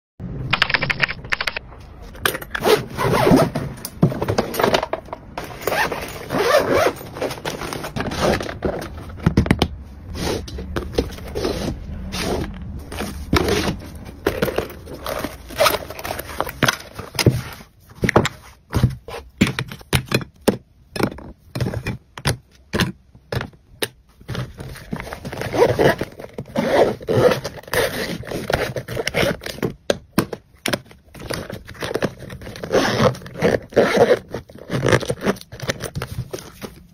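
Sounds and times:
plastic cases rustling and scraping: 0:01.8 - 0:36.9
zippers: 0:02.5 - 0:03.8, 0:05.4 - 0:09.0, 0:10.1 - 0:17.6, 0:24.3 - 0:29.7, 0:31.2 - 0:36.7
cases clicking and tapping: 0:12.4 - 0:26.5, 0:27.3 - 0:36.9.

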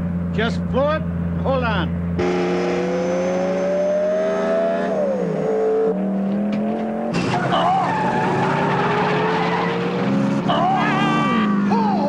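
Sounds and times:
racing car engines accelerating: 0:02.2 - 0:12.0
tire squeal: 0:07.2 - 0:12.0.

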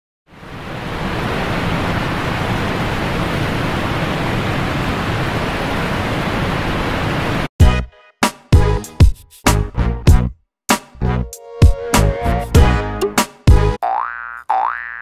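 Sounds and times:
music: 0:07.6 - 0:13.8.

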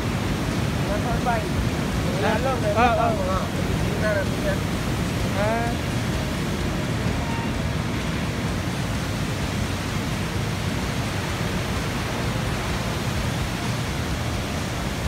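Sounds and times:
waterfall roaring: 0:00.0 - 0:15.0.

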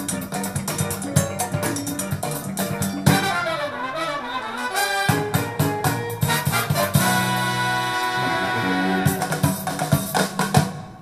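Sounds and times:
drum hits: 0:00.0 - 0:03.4, 0:09.0 - 0:11.0
sliding horn notes: 0:02.7 - 0:09.6.

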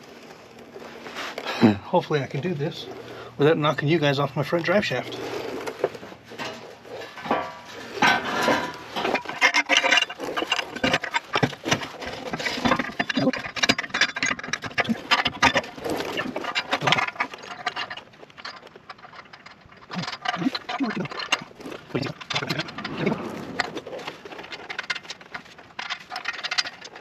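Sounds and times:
exhaust pipe clanking and scraping: 0:00.0 - 0:27.0.

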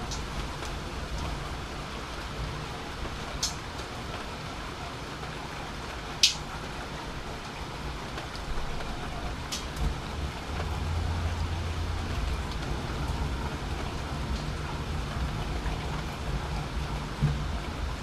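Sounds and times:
steady rain falling: 0:00.0 - 0:18.0.

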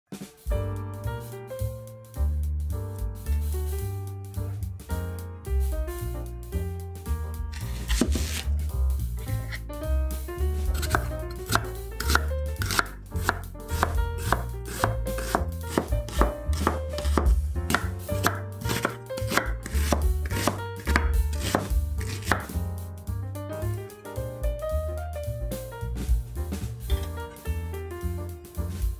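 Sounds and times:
background music: 0:00.1 - 0:28.9
knife chopping on wooden board: 0:07.6 - 0:08.5, 0:10.7 - 0:22.6.

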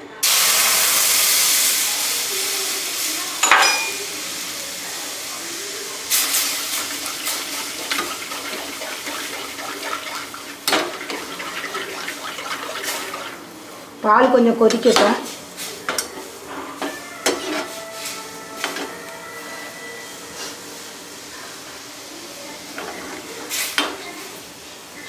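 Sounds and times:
milk hissing in hot pan: 0:00.2 - 0:14.0
metal spatula scraping a pan: 0:06.8 - 0:13.4, 0:16.5 - 0:20.6.

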